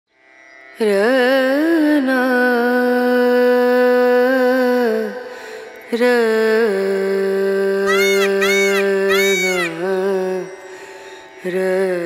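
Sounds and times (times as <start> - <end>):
person singing held notes: 7.9 - 9.8.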